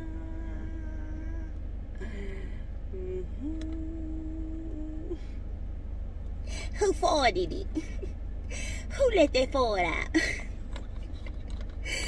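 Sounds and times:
woman singing long notes: 0.0 - 1.6, 2.9 - 5.3.

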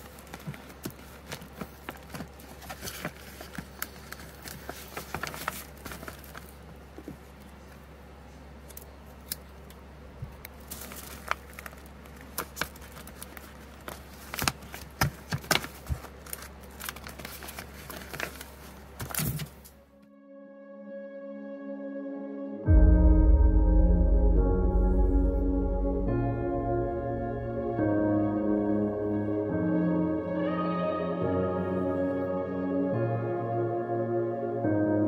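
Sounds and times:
paper crinkling and rustling: 0.0 - 7.8, 10.2 - 19.8
low steady hum: 0.0 - 20.1, 22.6 - 35.0.

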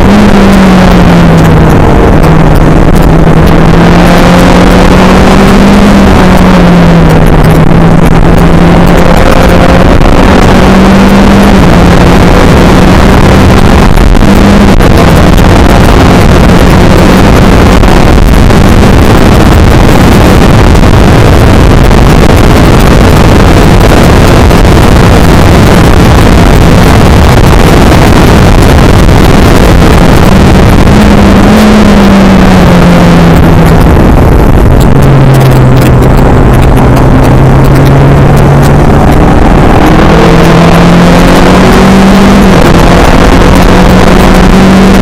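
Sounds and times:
race car engine: 0.0 - 45.0
wind rush: 0.0 - 45.0.

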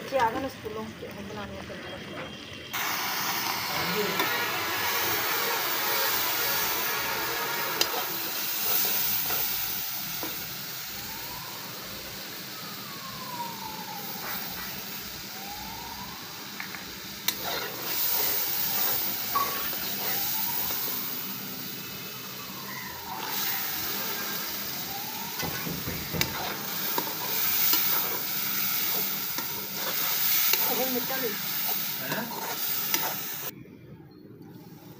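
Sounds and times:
faint wailing siren: 2.1 - 33.6
food sizzling in oil: 2.3 - 33.5.

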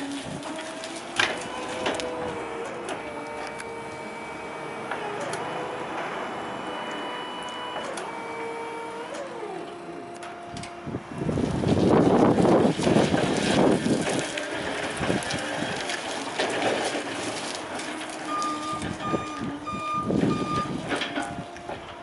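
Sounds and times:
forklift drive and hydraulics: 0.0 - 22.0
reversing alarm beeps: 3.7 - 8.9, 18.2 - 20.8.

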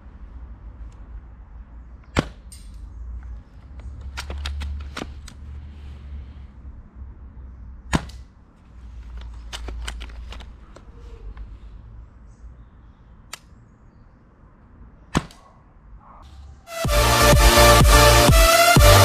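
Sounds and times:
airsoft rifle shots: 15.1 - 15.4.

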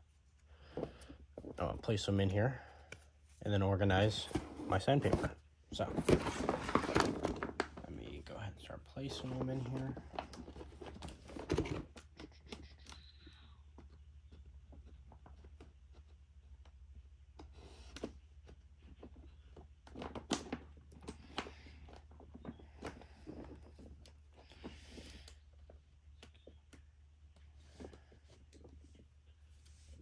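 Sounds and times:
paper and plastic rustling: 4.0 - 12.3.

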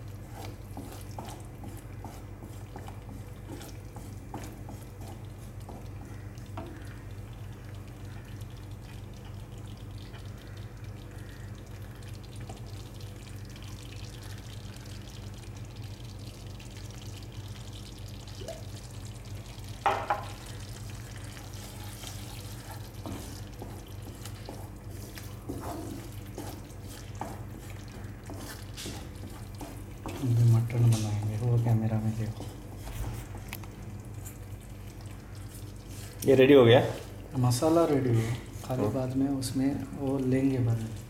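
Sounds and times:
wooden spatula stirring paste: 0.1 - 6.9, 21.5 - 33.3, 35.4 - 41.0.

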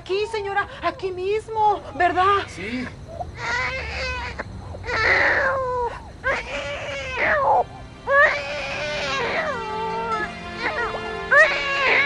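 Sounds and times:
person crying in wavering wails: 4.9 - 12.0
background music: 6.1 - 12.0.

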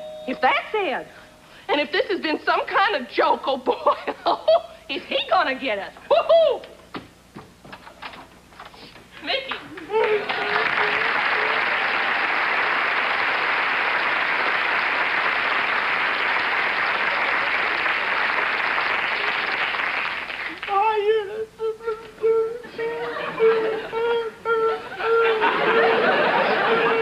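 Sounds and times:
studio audience applauding: 9.7 - 20.8
person singing wavering tune: 20.8 - 25.4.

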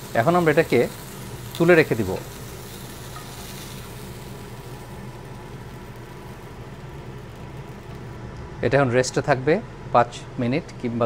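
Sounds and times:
chicken sizzling in a pan: 0.0 - 8.2.

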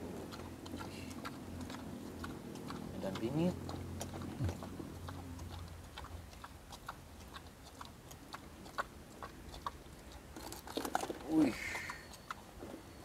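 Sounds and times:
boar chewing with crunching clicks: 0.0 - 13.0.

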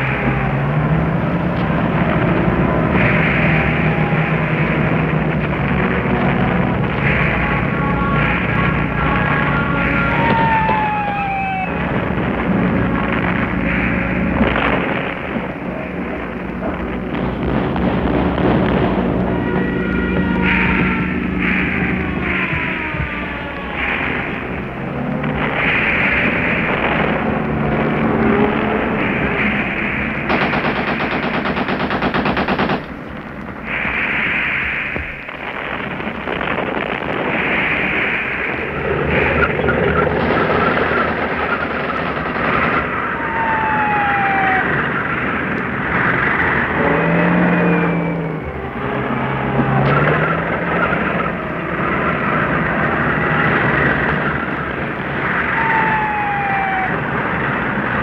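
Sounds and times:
dense continuous rumble: 0.0 - 58.0
gunshots: 1.8 - 48.4
falling whistles: 9.8 - 11.8, 42.9 - 45.3, 47.0 - 51.4, 55.4 - 57.1
machine-gun fire: 30.2 - 33.0, 40.1 - 43.1.

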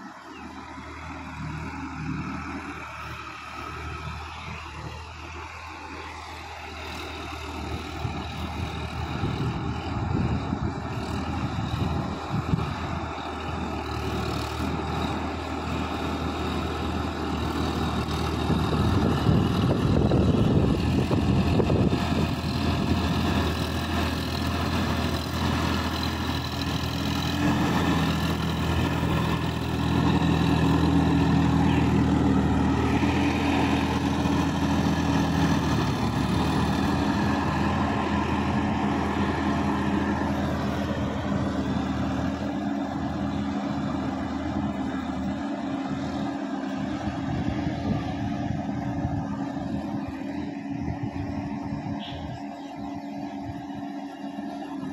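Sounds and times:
tractor diesel engine: 0.0 - 54.9.

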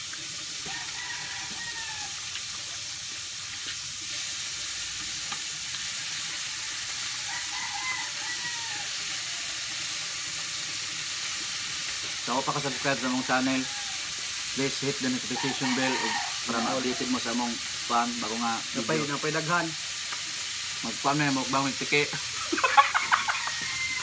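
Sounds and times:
rooster crowing: 0.6 - 2.3, 6.2 - 9.8, 12.8 - 14.3, 15.2 - 17.5, 22.6 - 24.0
steady hiss: 1.4 - 24.0.

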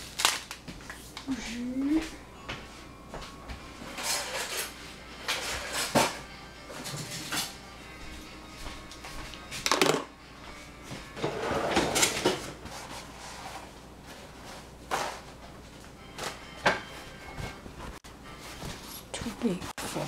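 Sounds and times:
kitchen knocks and clatters: 3.9 - 7.6, 9.6 - 10.1, 11.2 - 12.9, 16.2 - 17.6
rattling containers: 9.6 - 10.1.

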